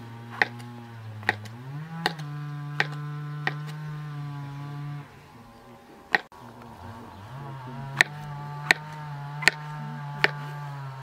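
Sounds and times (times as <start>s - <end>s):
steady low drone: 0.0s - 11.0s
knife chopping on wooden board: 0.3s - 3.9s, 7.9s - 10.6s.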